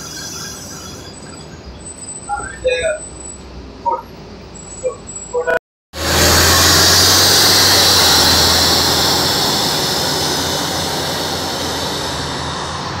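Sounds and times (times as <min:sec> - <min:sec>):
bus engine pulling away: 0:00.0 - 0:13.0
high hiss: 0:06.0 - 0:13.0.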